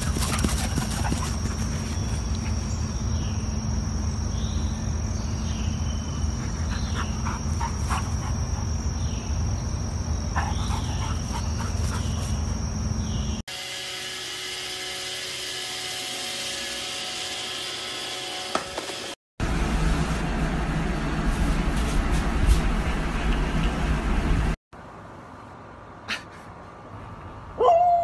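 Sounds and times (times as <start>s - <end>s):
insects droning: 0.0s - 13.4s.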